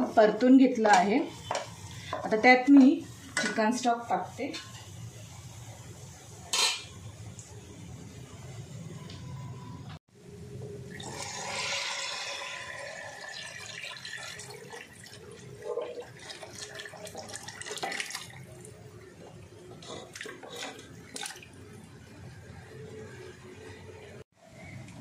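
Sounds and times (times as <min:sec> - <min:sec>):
stock pouring and splashing: 0:11.0 - 0:18.7.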